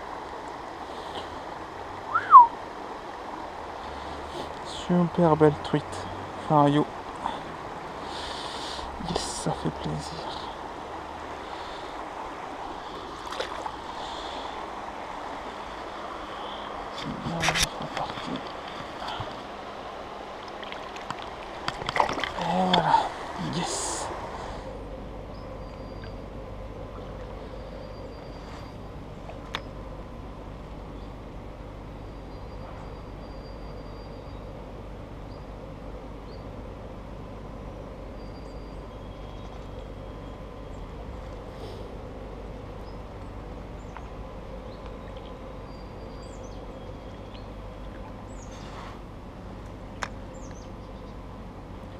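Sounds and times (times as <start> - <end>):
river water flowing: 0.0 - 33.2, 34.1 - 51.9
low rushing outdoor noise: 0.0 - 51.9
faint high chirps: 2.1 - 2.5.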